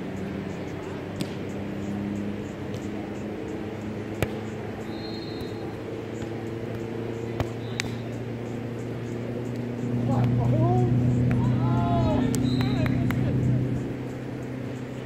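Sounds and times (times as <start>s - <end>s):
steady low hum: 0.0s - 15.0s
volleyball hand slaps: 1.2s - 1.4s, 4.1s - 4.4s, 6.2s - 8.1s, 9.5s - 10.4s, 11.2s - 11.5s, 12.3s - 13.2s.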